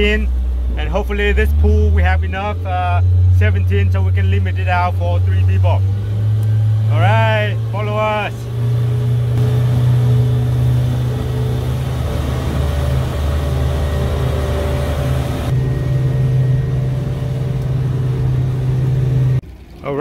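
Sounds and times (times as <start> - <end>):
outboard motor humming: 0.0 - 20.0
rush of wind and water: 9.4 - 15.5.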